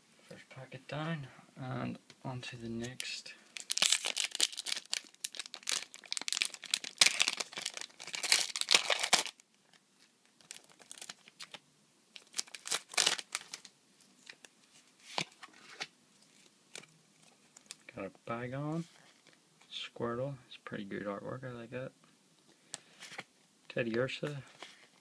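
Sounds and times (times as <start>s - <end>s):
foil wrapper crinkling and tearing: 3.6s - 9.8s, 10.4s - 11.6s, 12.2s - 14.4s.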